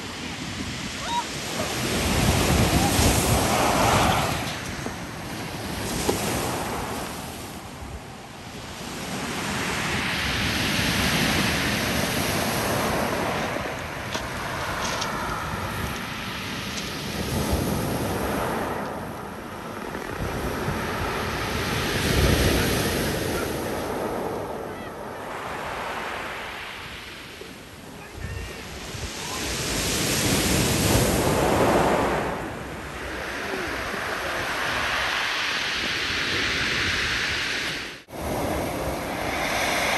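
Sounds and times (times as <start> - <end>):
surf washing over pebbles: 0.0 - 7.7, 9.0 - 39.9
sea waves breaking on rocks: 0.5 - 7.5.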